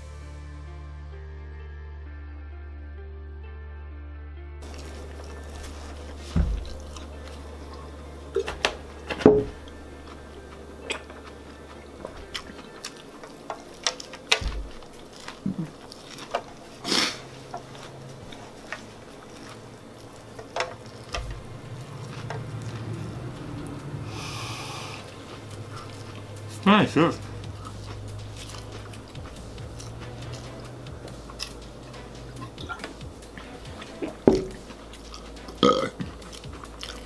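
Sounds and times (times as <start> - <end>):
chewing: 4.6 - 37.0.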